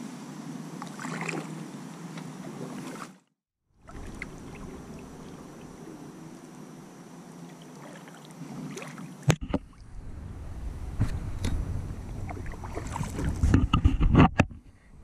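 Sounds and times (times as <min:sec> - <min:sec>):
kayak swishing through water: 0:00.9 - 0:06.6, 0:07.4 - 0:14.2
water drips and splashes: 0:03.8 - 0:05.7, 0:11.0 - 0:13.4.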